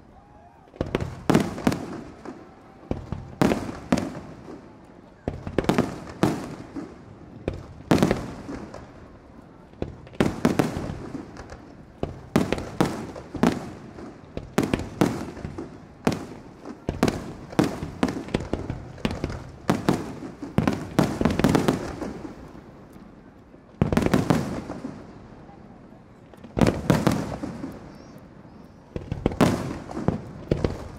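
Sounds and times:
fireworks bursting with booms: 0.6s - 30.9s.

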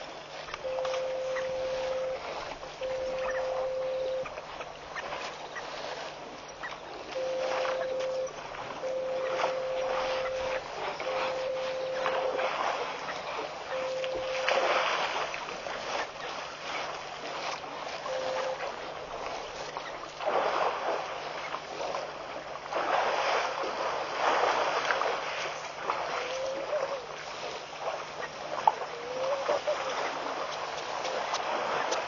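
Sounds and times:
water splashing and sloshing: 0.0s - 32.0s
brief whistle-like notes: 0.6s - 2.2s, 7.2s - 12.4s.

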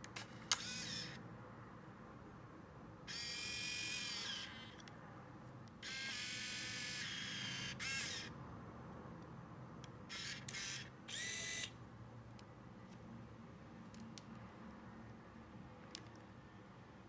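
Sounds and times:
camera shutter click: 0.5s - 1.2s
camera zoom motor whining: 0.5s - 1.2s, 3.1s - 4.8s, 5.8s - 8.3s, 10.1s - 11.8s
film advance whir: 0.5s - 1.2s, 3.1s - 4.8s, 5.8s - 8.3s, 10.1s - 11.8s
short motor buzz: 0.5s - 1.2s, 3.1s - 4.7s, 5.8s - 8.3s, 10.1s - 11.8s.

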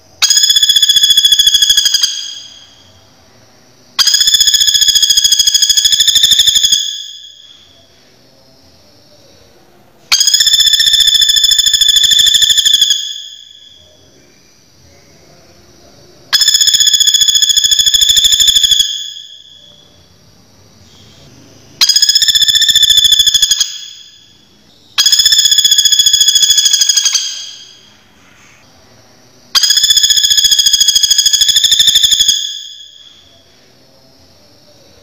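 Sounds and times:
woodpecker rattling trill call: 0.2s - 2.6s, 21.8s - 24.1s, 25.0s - 27.8s, 29.6s - 32.9s.

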